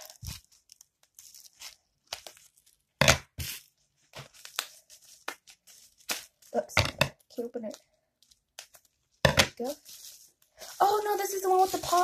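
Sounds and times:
package tearing and crinkling: 0.0 - 6.6, 9.6 - 12.0.

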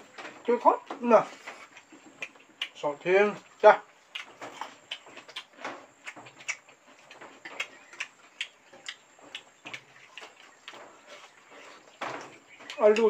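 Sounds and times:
chewing clicks: 1.6 - 2.8, 4.1 - 11.7
lip smacks: 1.6 - 2.8, 4.1 - 11.4.

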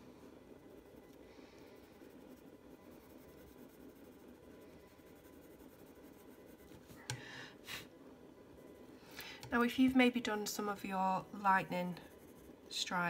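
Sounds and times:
coloured pencil scratching on paper: 1.8 - 7.0, 11.8 - 12.8.

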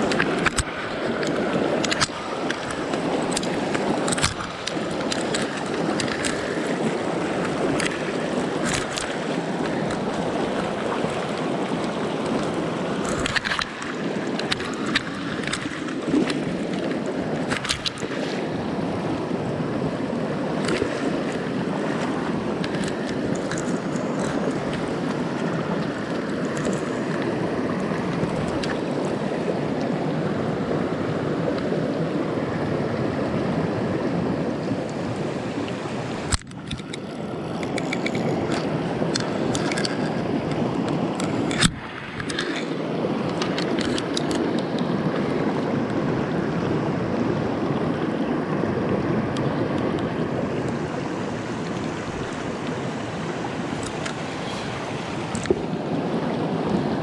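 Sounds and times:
stream babbling over stones: 0.0 - 57.0.

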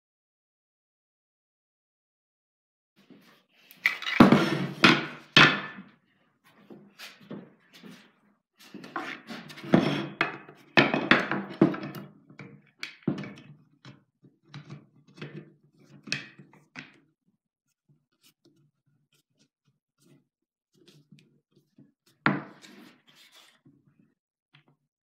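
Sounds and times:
wooden handles knocking on workbench: 4.0 - 5.9, 9.6 - 12.0.

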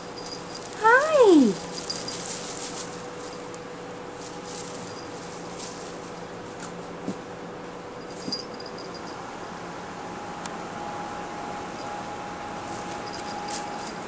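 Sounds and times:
faint steady hum: 0.0 - 14.0
foil toy rustling on blanket: 0.1 - 7.2.

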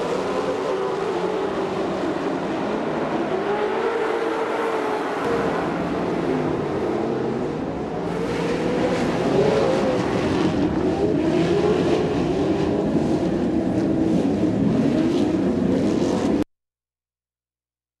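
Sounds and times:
racing truck engines revving: 0.0 - 16.5.

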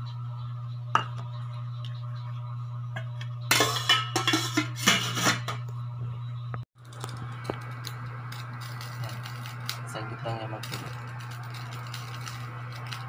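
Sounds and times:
steady low hum: 0.0 - 13.0
metal pot lid clattering: 3.5 - 5.6.

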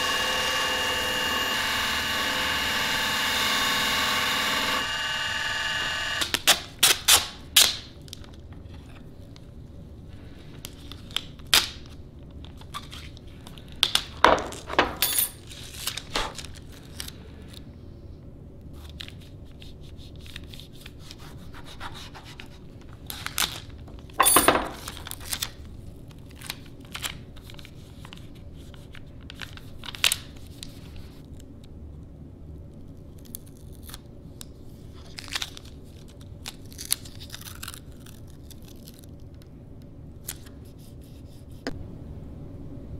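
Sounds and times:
tape crackling and tearing: 32.7 - 39.5.

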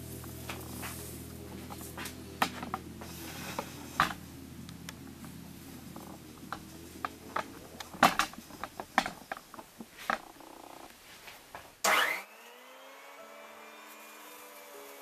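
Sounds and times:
grain knocking and rattling: 5.9 - 11.8
grinder motor whining and humming: 11.8 - 15.0.

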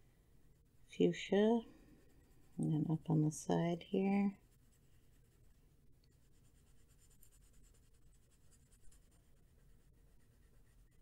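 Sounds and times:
pencil scratching on paper: 1.8 - 3.3, 4.3 - 11.0.

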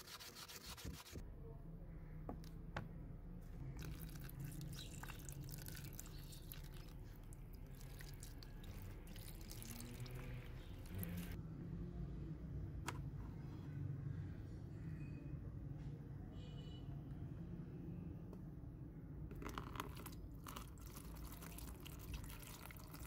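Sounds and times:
sandpaper rubbing on metal: 0.0 - 1.2
liquid pouring into tub: 3.8 - 11.4, 19.3 - 23.0.

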